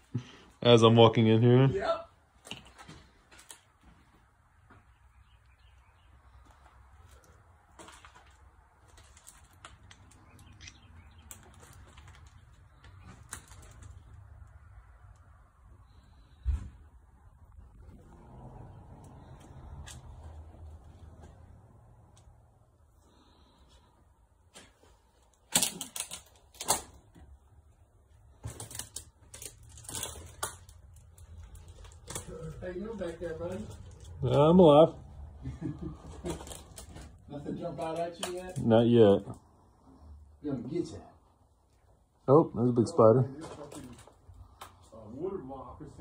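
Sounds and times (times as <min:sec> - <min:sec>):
faint footsteps: 0:02.4 - 0:05.2
rustling: 0:05.6 - 0:21.6.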